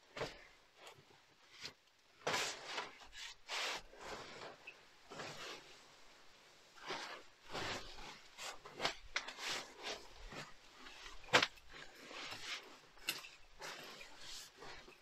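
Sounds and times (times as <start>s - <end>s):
sleeping bag rustling: 2.2s - 15.0s.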